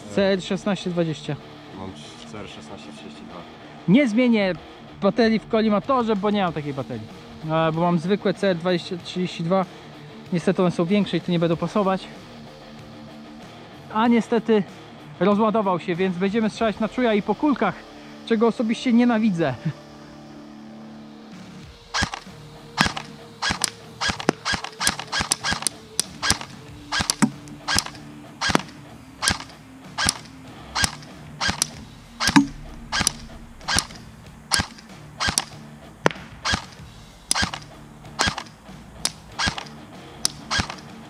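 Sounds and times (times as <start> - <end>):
airsoft gun single shots: 21.9 - 40.9.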